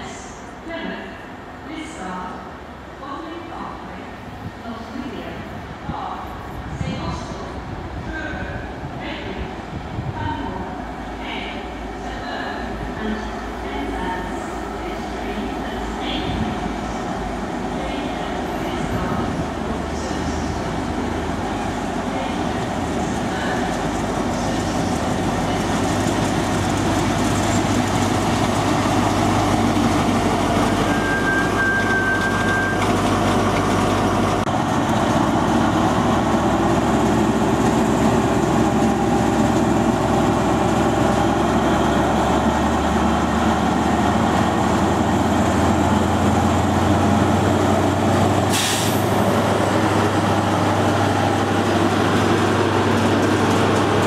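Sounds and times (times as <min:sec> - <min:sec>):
diesel train engine: 0:00.0 - 0:54.0
high squeal: 0:30.8 - 0:33.0
hiss of air: 0:48.5 - 0:49.0.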